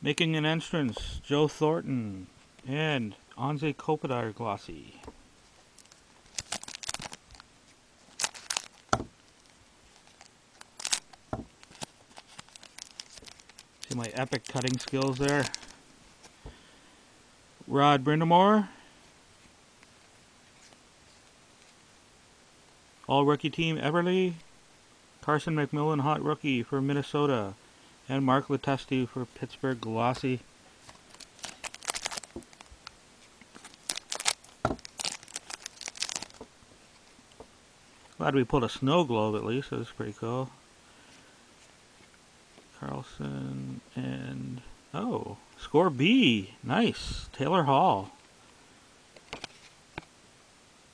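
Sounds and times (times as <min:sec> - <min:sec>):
foil pack crinkling and tearing: 0:05.8 - 0:15.8, 0:30.8 - 0:32.8, 0:33.5 - 0:36.4.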